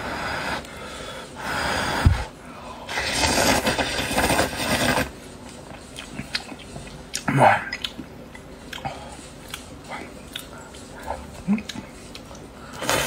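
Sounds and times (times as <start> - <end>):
person slurping noodles: 2.9 - 5.1.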